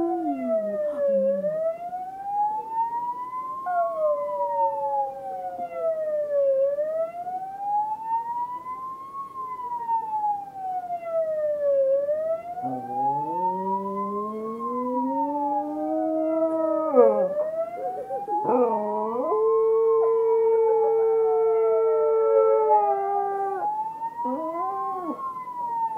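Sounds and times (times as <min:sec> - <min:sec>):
siren wailing: 0:00.0 - 0:25.9
dog howling: 0:12.6 - 0:23.6.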